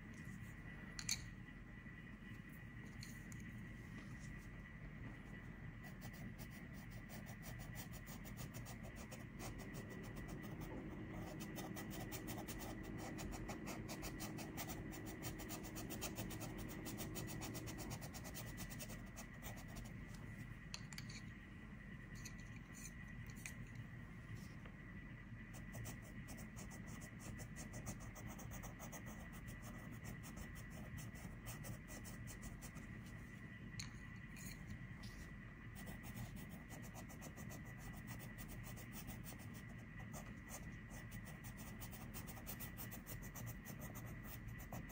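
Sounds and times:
colored pencil scratching on paper: 5.8s - 20.0s, 25.5s - 32.9s, 35.8s - 44.9s.

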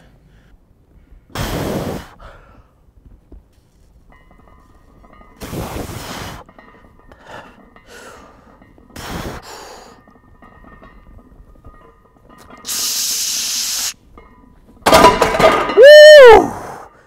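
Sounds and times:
sharp hissing breaths: 1.3s - 2.8s, 7.1s - 10.0s, 12.6s - 14.0s.

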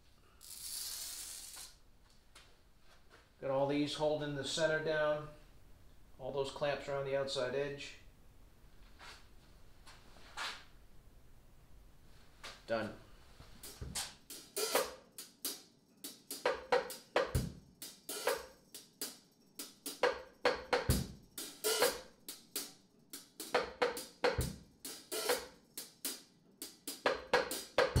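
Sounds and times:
hi-hat cymbal and snare strokes: 0.0s - 1.8s, 13.6s - 28.0s.

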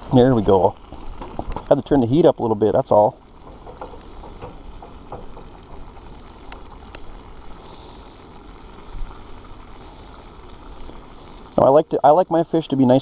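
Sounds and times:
fish fillets sizzling in skillet: 0.0s - 13.0s
small pops: 3.2s - 11.5s.

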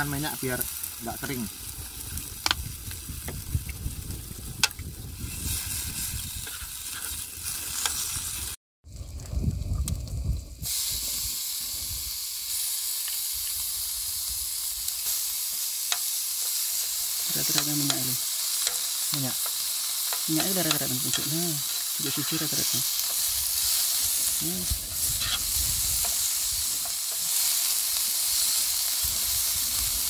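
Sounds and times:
meat sizzling in a pan: 0.0s - 8.6s, 10.6s - 30.0s
metal tongs clicking on pan: 17.5s - 22.0s.

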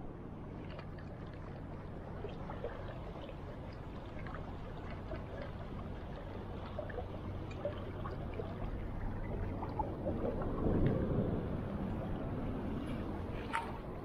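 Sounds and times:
water trickles and splashes: 0.1s - 14.0s.

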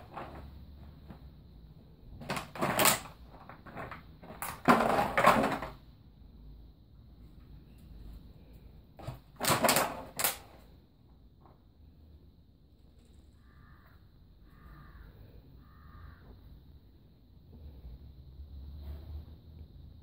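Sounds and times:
plastic bottle clattering: 0.0s - 1.3s, 2.2s - 5.8s, 9.0s - 10.6s.

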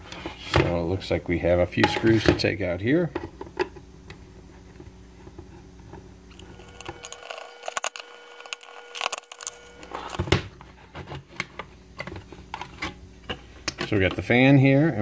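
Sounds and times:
screws clinking on metal case: 6.3s - 9.8s.

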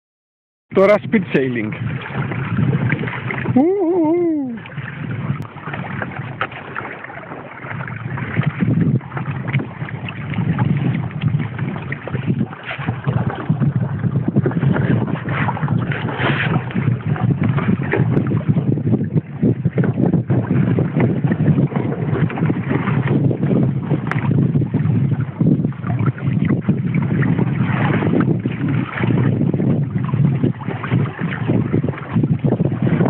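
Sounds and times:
water rushing along hull: 0.7s - 33.0s
wind buffeting microphone: 0.7s - 33.0s
short vocal sound: 3.6s - 4.6s.

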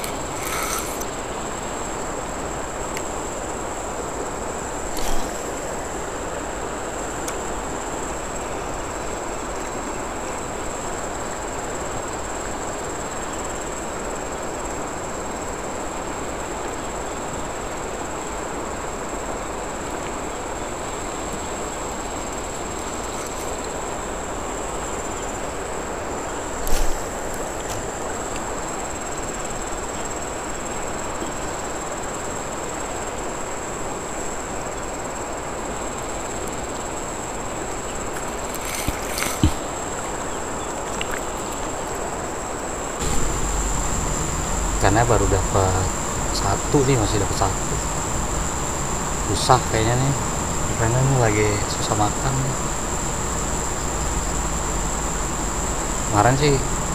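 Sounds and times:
high-pitched insect drone: 0.0s - 1.6s, 43.0s - 56.9s
river water rushing: 37.3s - 56.9s.

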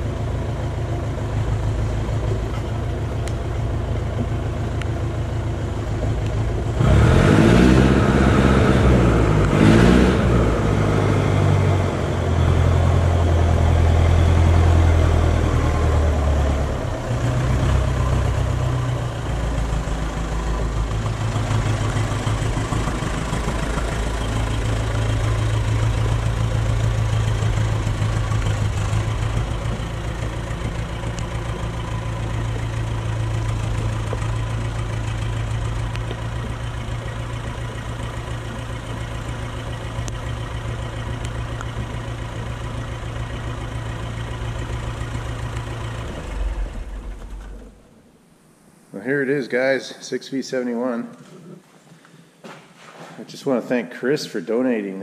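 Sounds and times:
forklift engine revving and idling: 0.0s - 48.0s.

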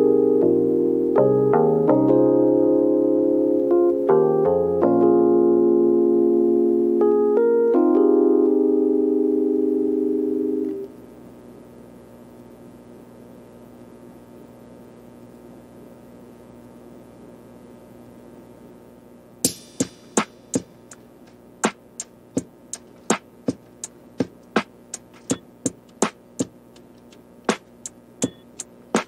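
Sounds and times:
sharp electronic percussion clicks: 19.4s - 21.0s, 22.4s - 29.0s.

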